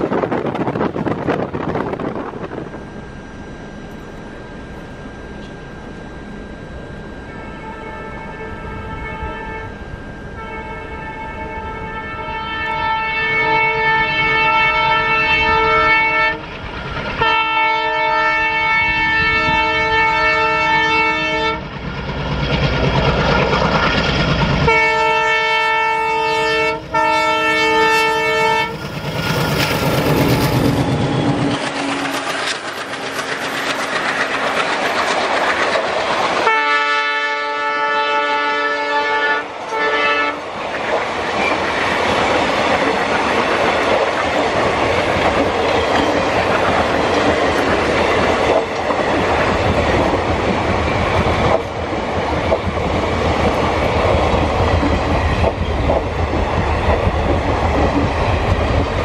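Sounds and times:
locomotive engine rumbling: 0:00.0 - 0:59.0
locomotive horn blasts: 0:07.2 - 0:16.5, 0:17.2 - 0:21.7, 0:24.6 - 0:28.9, 0:36.4 - 0:40.4
train wheels clattering over rail joints: 0:28.8 - 0:36.5, 0:40.7 - 0:59.0.

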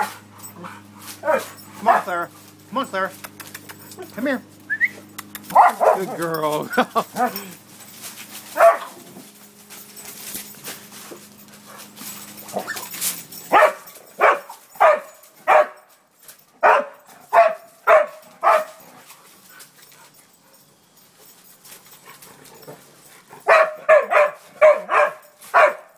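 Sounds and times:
dog barking: 0:01.2 - 0:02.2, 0:05.5 - 0:06.2, 0:08.6 - 0:09.0, 0:13.5 - 0:15.9, 0:16.6 - 0:18.8, 0:23.4 - 0:25.9.

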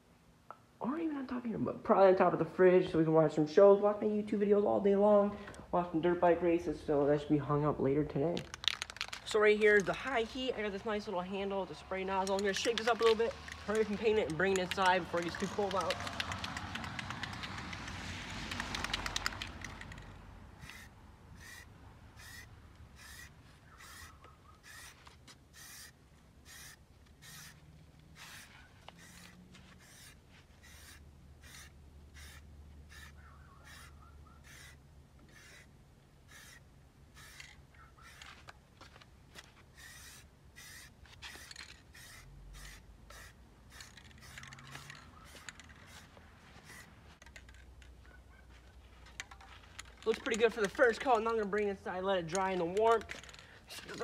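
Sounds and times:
spray paint can hissing bursts: 0:12.2 - 0:20.0, 0:20.6 - 0:27.6, 0:28.2 - 0:38.3, 0:39.7 - 0:46.9.

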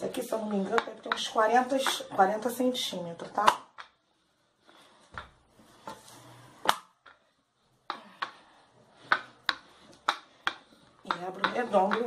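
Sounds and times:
rolling pin rolling clay: 0:00.0 - 0:12.0.

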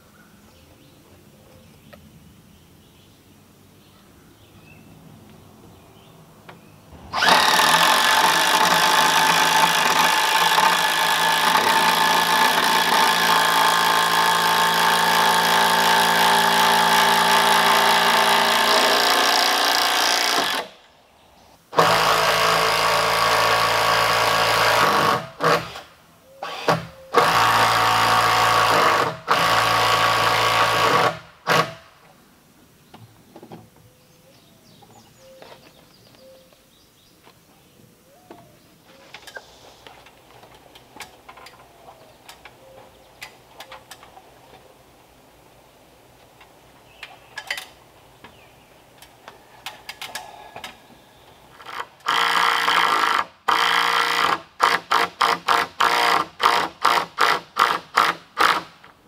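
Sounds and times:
cordless drill drilling into wood: 0:07.1 - 0:20.7, 0:21.8 - 0:31.8, 0:51.6 - 0:58.6.

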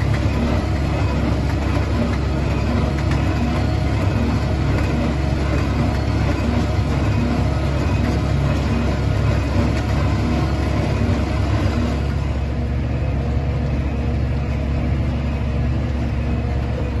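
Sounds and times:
baler machinery beat: 0:00.0 - 0:12.4
tractor engine running: 0:00.0 - 0:17.0.

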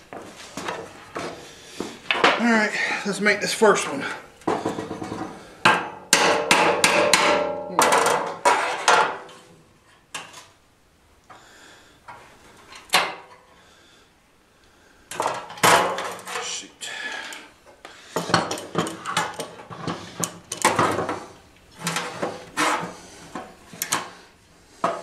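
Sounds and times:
hammer striking sheet metal: 0:05.6 - 0:09.2.

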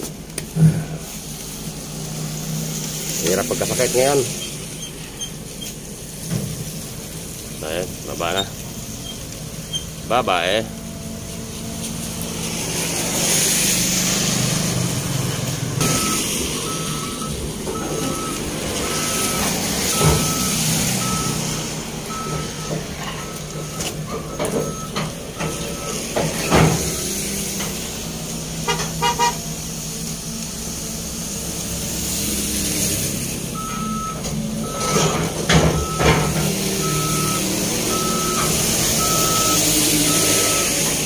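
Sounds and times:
diesel engine running: 0:00.0 - 0:41.0
travel alarm beeping: 0:15.8 - 0:27.1, 0:33.6 - 0:35.1, 0:35.8 - 0:36.2, 0:36.8 - 0:40.8.

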